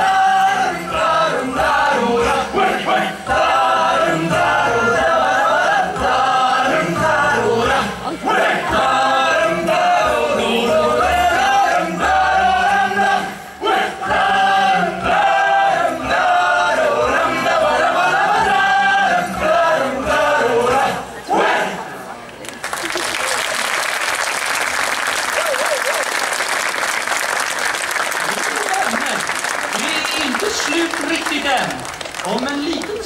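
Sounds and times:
backing music: 0.0 - 21.2
group of voices singing: 0.0 - 21.9.

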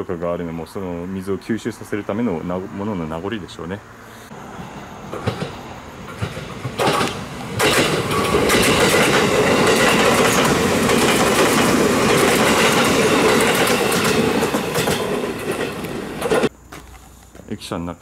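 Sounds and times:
electric train passing at speed: 0.7 - 16.5
wheels clacking over rail joints: 4.6 - 17.5.

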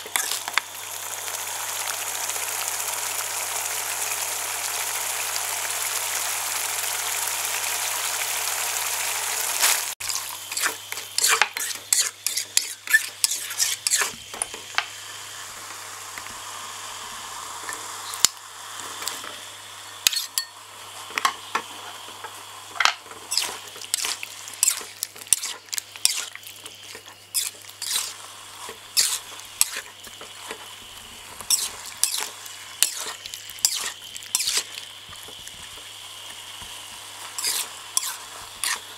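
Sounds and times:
metal spatula scraping wok: 0.0 - 0.6, 9.6 - 14.2, 23.1 - 34.8, 37.2 - 38.9
sauce boiling and bubbling: 0.0 - 38.9.

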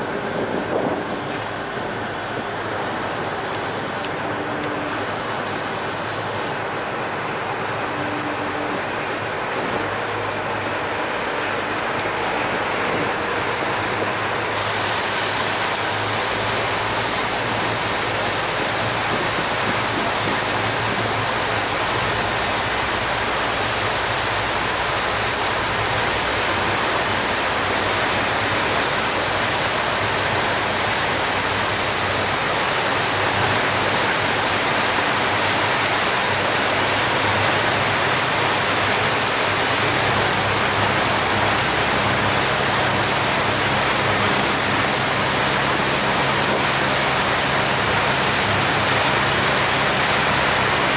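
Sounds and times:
low engine hum: 0.0 - 50.9
propeller wash churning: 0.0 - 50.9.

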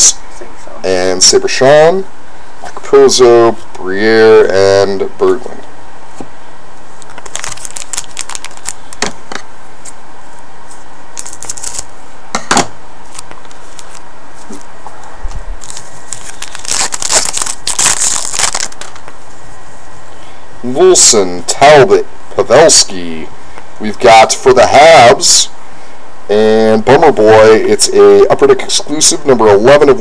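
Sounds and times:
cards clicking and rustling: 7.0 - 9.1, 11.2 - 11.8, 13.1 - 14.6, 15.6 - 19.2
wrapper crinkling and tearing: 7.0 - 9.1, 11.2 - 11.9, 13.1 - 14.0, 15.5 - 19.1.

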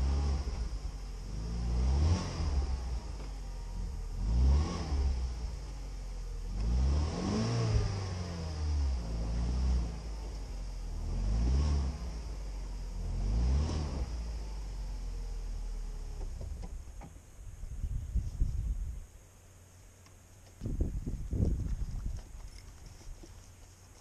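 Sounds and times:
suv engine revving: 0.0 - 17.7.

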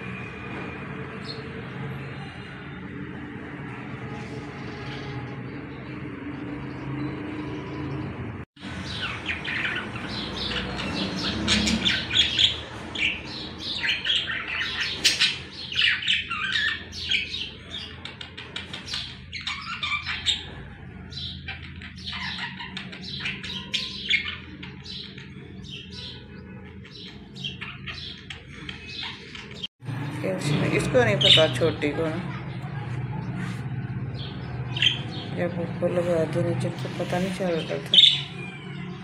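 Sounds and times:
budgerigars chattering: 8.6 - 29.7, 34.2 - 38.6.

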